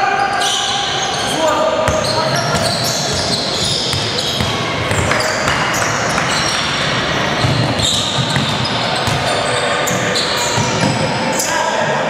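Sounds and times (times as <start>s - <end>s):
sneakers squeaking: 0.2s - 11.5s
basketball bouncing on wooden court: 1.8s - 11.1s.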